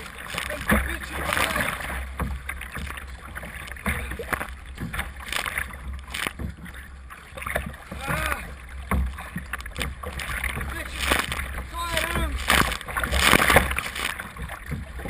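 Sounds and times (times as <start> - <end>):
paddle splashing in water: 0.0 - 15.0.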